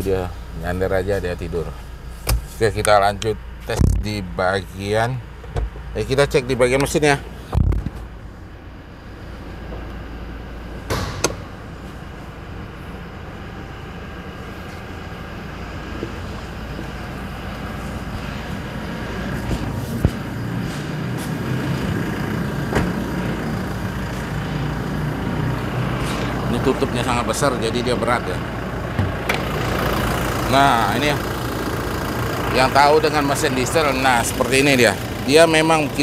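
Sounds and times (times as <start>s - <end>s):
diesel engine idling: 0.0s - 36.0s.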